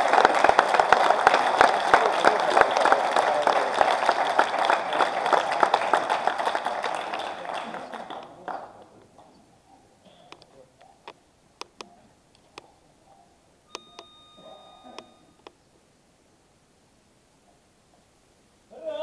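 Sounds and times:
applause: 0.0s - 8.9s
high-pitched beep: 13.7s - 15.4s.

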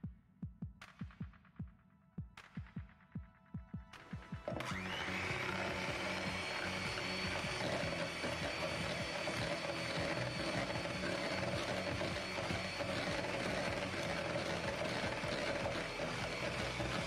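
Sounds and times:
electric hand mixer whisking: 4.5s - 17.0s.

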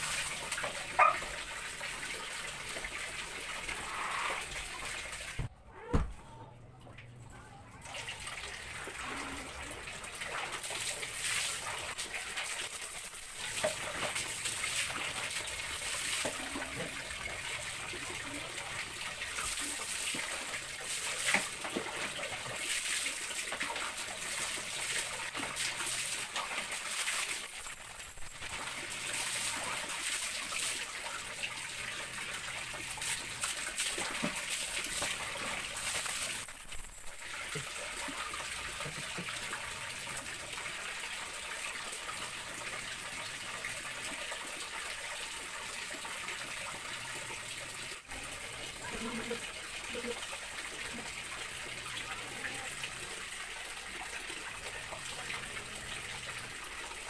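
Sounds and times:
water splashing on tiled floor: 7.8s - 40.0s.

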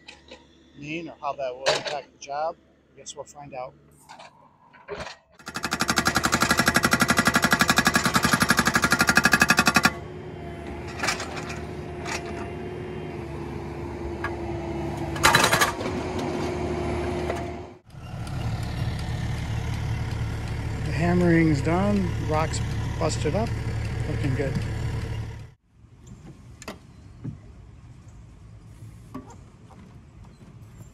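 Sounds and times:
hydraulic breaker hammering rock: 5.4s - 10.0s
diesel engine running: 5.4s - 25.6s.

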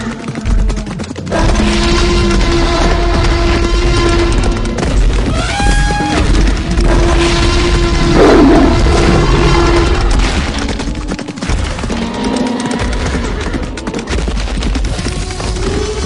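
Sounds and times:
running hooves rumble: 0.0s - 16.0s
animal roar: 5.7s - 11.2s.

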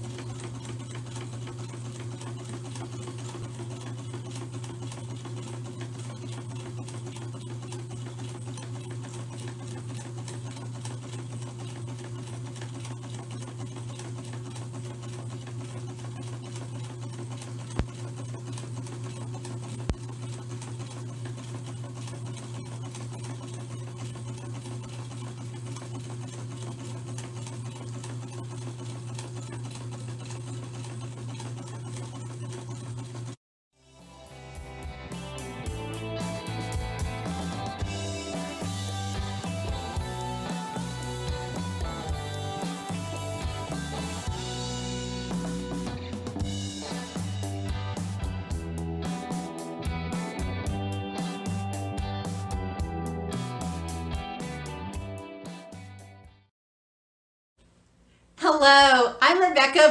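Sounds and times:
electric sewing machine humming: 0.0s - 33.4s, 35.1s - 54.0s.

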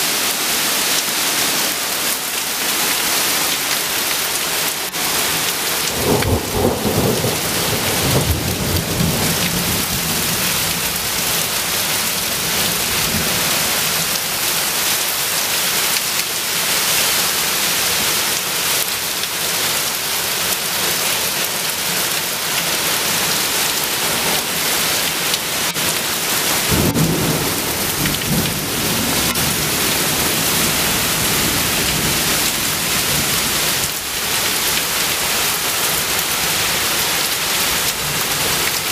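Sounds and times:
heavy rain pouring on lake: 0.0s - 38.9s
thunder rumbling: 5.9s - 11.6s, 26.6s - 33.6s.

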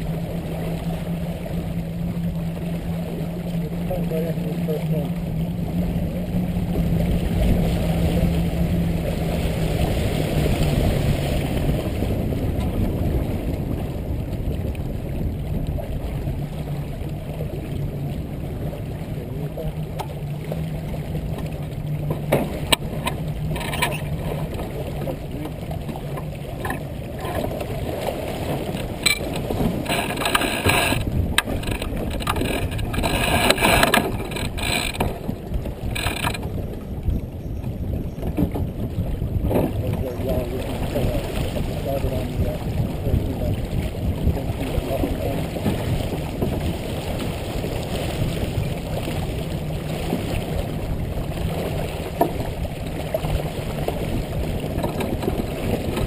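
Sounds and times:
knocks and rattles: 29.0s - 35.2s.

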